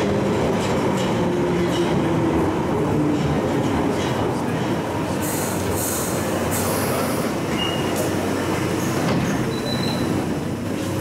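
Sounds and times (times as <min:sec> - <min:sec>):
train rumble: 0:00.0 - 0:11.0
high brake squeals: 0:07.5 - 0:08.1, 0:08.8 - 0:10.2.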